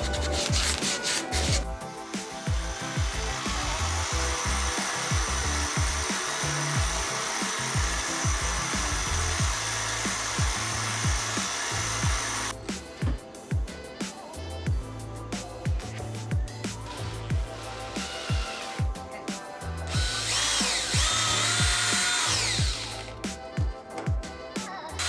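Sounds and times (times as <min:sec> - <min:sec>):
disc sander grinding wood: 0:00.0 - 0:12.5
background music with steady beat: 0:00.0 - 0:25.0.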